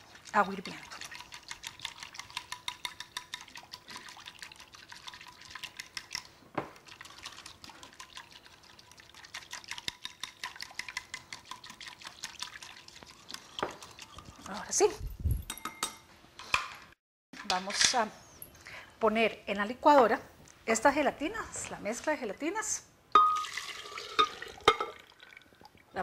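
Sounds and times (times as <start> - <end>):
liquid swishing: 0.0 - 14.8
whisk clicking against glass bowl: 0.6 - 3.8, 9.3 - 12.6.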